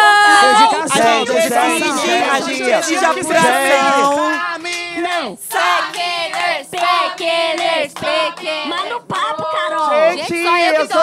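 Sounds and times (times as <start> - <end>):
women singing together: 5.4 - 11.0.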